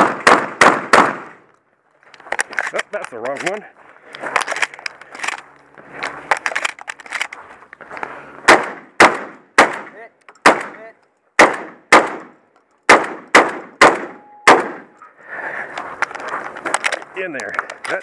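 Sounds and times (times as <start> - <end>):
shotgun shots: 0.0 - 1.4, 8.4 - 10.8, 11.4 - 14.9.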